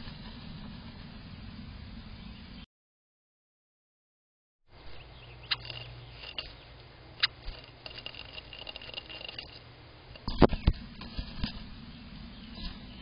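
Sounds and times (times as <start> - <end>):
wings fluttering: 0.0 - 2.2, 5.4 - 13.0
bird claws scratching on wood: 5.5 - 6.6, 7.2 - 9.6.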